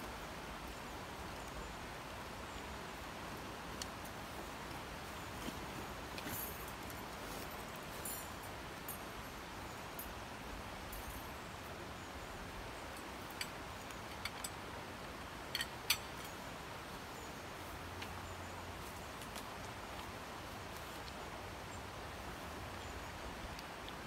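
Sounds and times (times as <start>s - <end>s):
outdoor background hiss: 0.0s - 24.0s
tent poles clicking: 15.4s - 16.4s.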